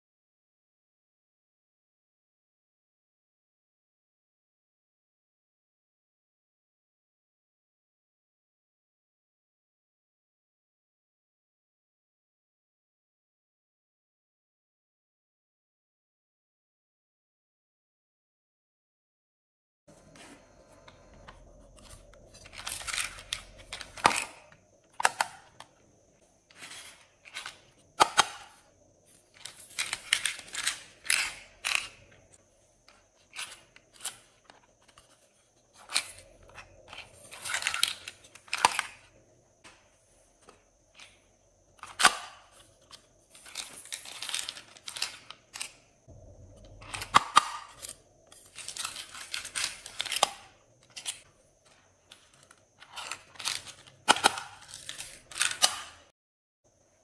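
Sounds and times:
plastic cases snapping: 21.8 - 25.7, 26.7 - 28.6, 52.8 - 56.0.

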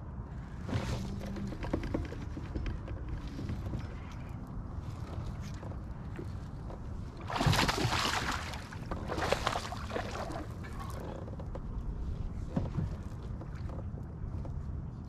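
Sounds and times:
low steady rumble: 0.0 - 15.0
paddle splashing through water: 6.2 - 11.1.

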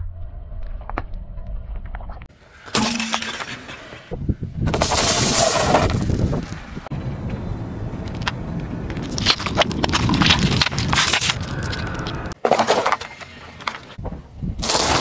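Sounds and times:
low tyre rumble: 4.1 - 12.4
short crunch: 7.2 - 12.4
plastic toys cracking under tyre: 8.1 - 13.1.

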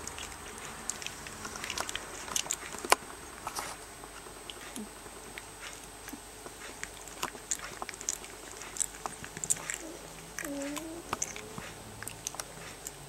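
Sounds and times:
puppies mouthing wet smacks: 0.0 - 13.0
puppy whimper: 9.4 - 11.8.

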